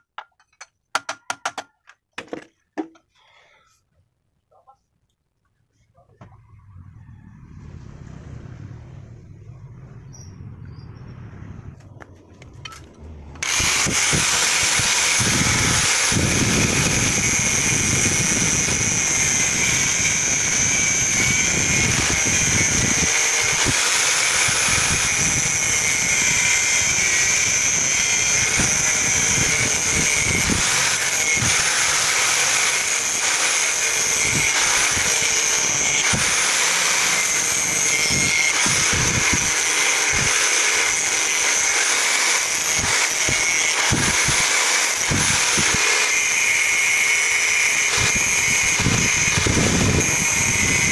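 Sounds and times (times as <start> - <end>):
low rumble: 6.3 - 13.9
angle grinder grinding steel: 11.7 - 50.9.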